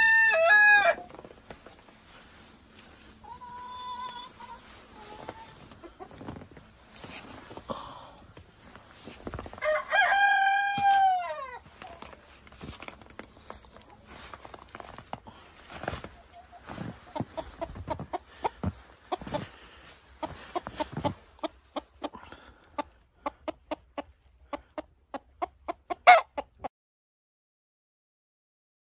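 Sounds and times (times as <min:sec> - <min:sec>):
chickens clucking: 0:01.1 - 0:07.5, 0:15.3 - 0:26.7.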